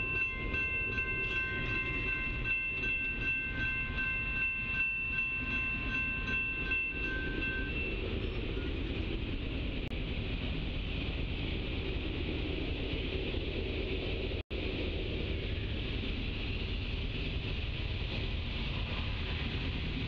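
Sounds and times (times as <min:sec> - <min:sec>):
crossing warning bell ringing: 0:00.0 - 0:09.5
steady low rumble: 0:00.0 - 0:20.0.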